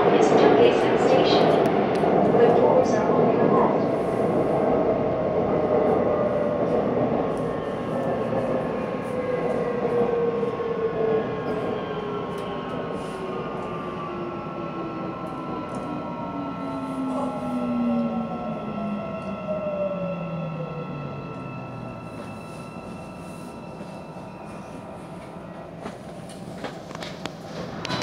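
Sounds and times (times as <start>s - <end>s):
train wheels rumbling on rail: 21.2s - 28.0s.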